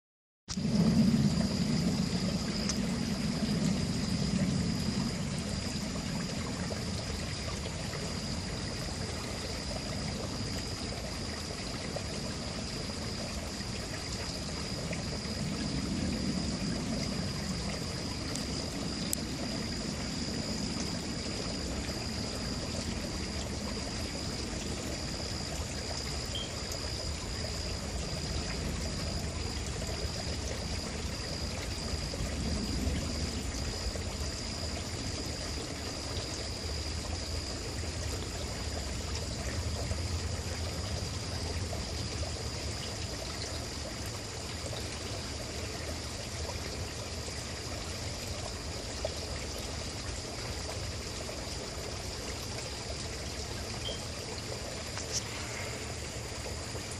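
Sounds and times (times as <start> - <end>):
distant thunder rumbles: 0.5 - 6.3
outdoor hiss: 49.6 - 56.9.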